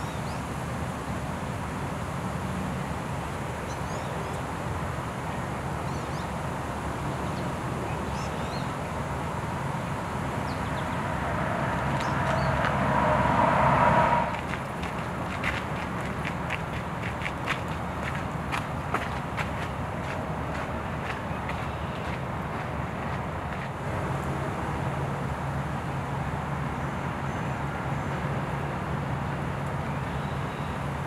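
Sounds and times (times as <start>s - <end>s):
distant traffic rumble: 4.4s - 27.2s
loud rushing noise: 9.1s - 15.7s.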